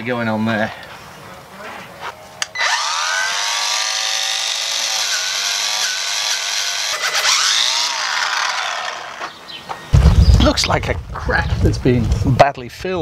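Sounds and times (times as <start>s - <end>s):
grinder whining: 2.5s - 9.4s.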